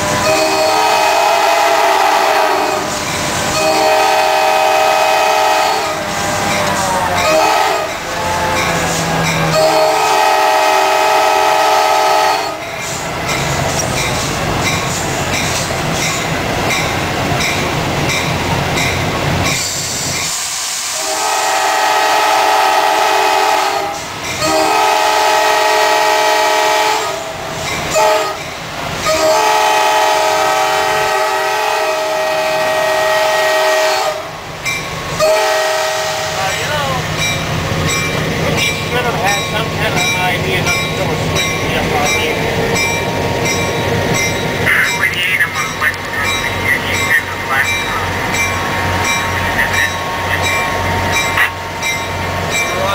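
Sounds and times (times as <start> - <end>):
locomotive air horn: 0.0 - 12.6, 20.9 - 28.4, 29.0 - 34.4, 35.2 - 36.6
locomotive running noise: 0.0 - 20.3, 34.3 - 52.9.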